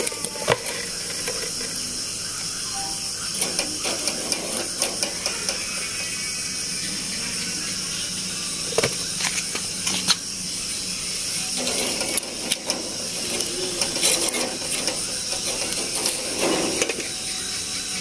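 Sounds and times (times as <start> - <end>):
chicken sizzling on grill: 9.6 - 18.0.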